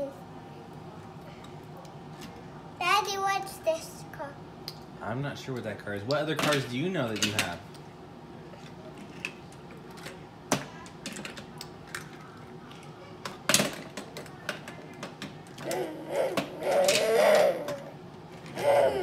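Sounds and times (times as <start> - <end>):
toy cars clattering on plastic: 6.4 - 7.6
child vocalizing: 15.6 - 18.0, 18.6 - 19.0.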